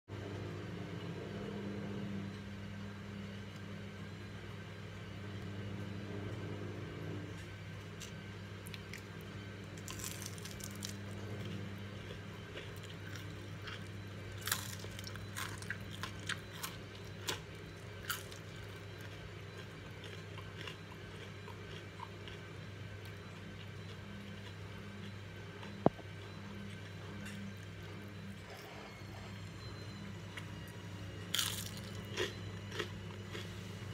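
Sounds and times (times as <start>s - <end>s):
steady low hum: 0.1s - 33.9s
fried leaves crackling: 9.8s - 11.2s, 14.4s - 17.4s.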